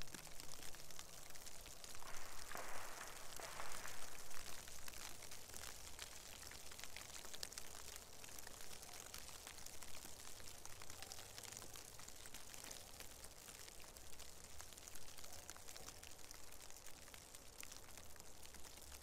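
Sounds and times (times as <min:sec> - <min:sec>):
wet snow pattering on leaves: 0:00.0 - 0:19.0
faint low rumble: 0:01.2 - 0:05.2.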